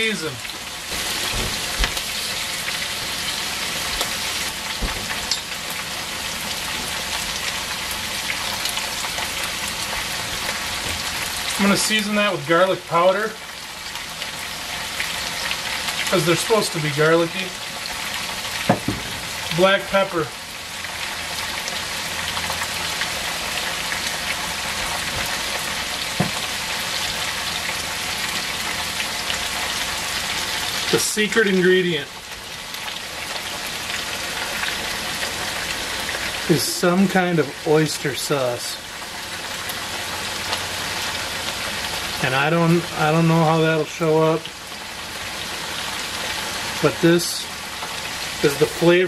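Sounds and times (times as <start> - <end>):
beans sizzling in hot oil: 0.0 - 49.0
light knocks in pan: 18.7 - 19.3.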